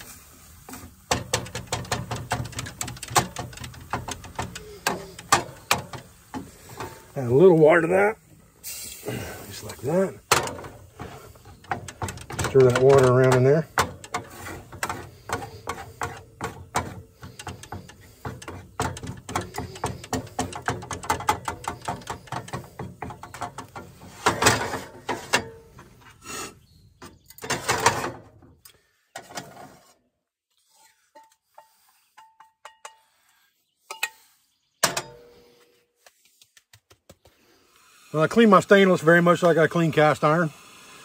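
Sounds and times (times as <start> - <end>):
spatula scraping eggs in skillet: 0.0 - 7.4, 8.7 - 26.0.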